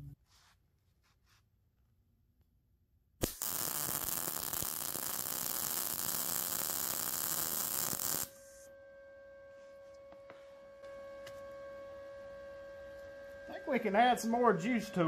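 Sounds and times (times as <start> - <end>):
welder crackling hissing buzz: 3.2 - 8.7.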